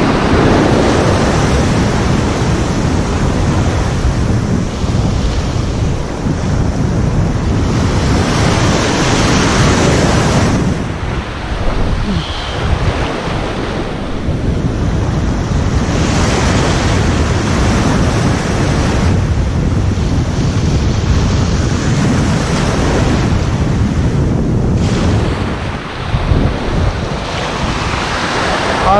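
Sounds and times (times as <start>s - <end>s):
surf washing and breaking: 0.0s - 28.9s
wind buffeting microphone: 0.0s - 28.9s.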